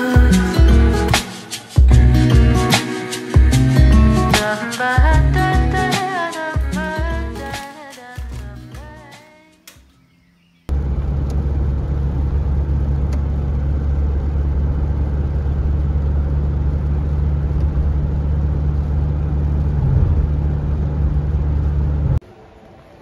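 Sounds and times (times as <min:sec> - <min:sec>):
car road and engine noise: 0:10.7 - 0:22.2.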